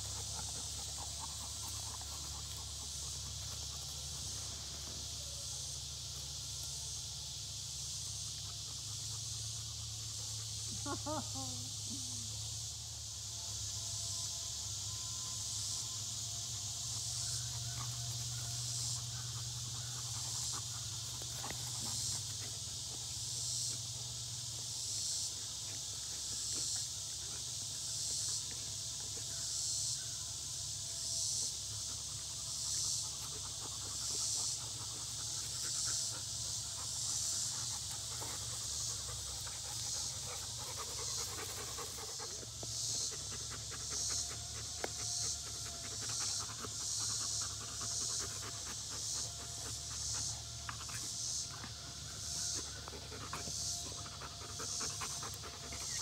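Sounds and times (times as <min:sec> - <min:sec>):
steady high hiss: 0:00.0 - 0:56.0
dogs panting: 0:32.4 - 0:56.0.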